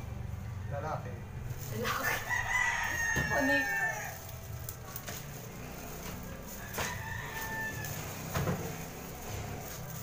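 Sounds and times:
rooster crowing: 0:02.0 - 0:04.4, 0:06.4 - 0:08.8.

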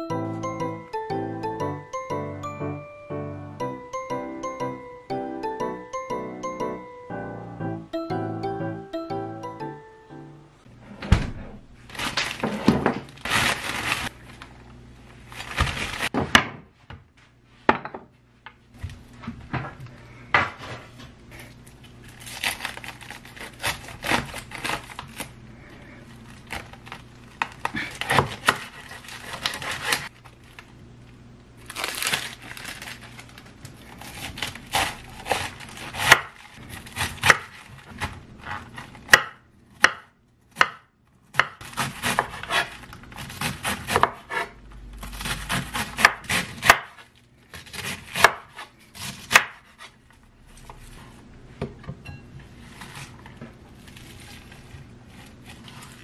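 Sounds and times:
plastic bag crinkling: 0:11.9 - 0:16.1, 0:31.6 - 0:36.9
knife slicing cabbage on board: 0:34.0 - 0:50.0.

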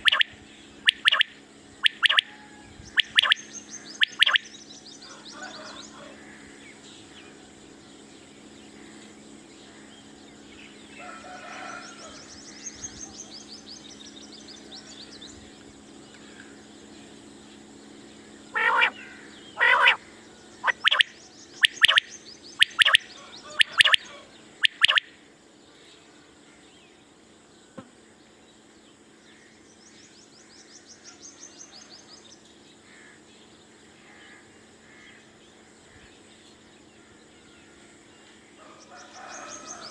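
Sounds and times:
high-pitched bird trills: 0:00.0 - 0:06.0, 0:18.5 - 0:20.0, 0:20.6 - 0:25.2
quail calling: 0:00.0 - 0:06.5, 0:18.5 - 0:25.0
steady low hum: 0:00.0 - 0:39.9.

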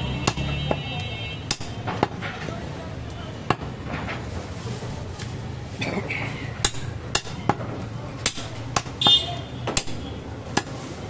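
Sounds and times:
cleaver chopping meat and bone: 0:00.1 - 0:00.8, 0:01.4 - 0:02.2, 0:06.6 - 0:09.0, 0:09.6 - 0:10.8.

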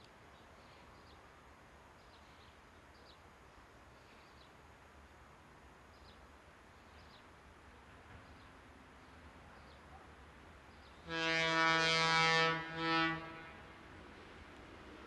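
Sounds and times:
electric locomotive horn: 0:11.1 - 0:13.8.

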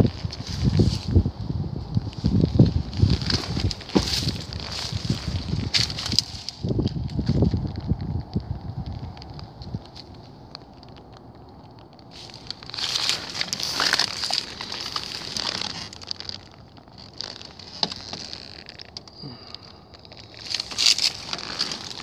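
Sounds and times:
branches scraping: 0:00.0 - 0:22.0
twigs crackling and snapping: 0:00.0 - 0:22.0
footsteps crunching dry leaves: 0:02.0 - 0:07.5, 0:12.1 - 0:22.0.

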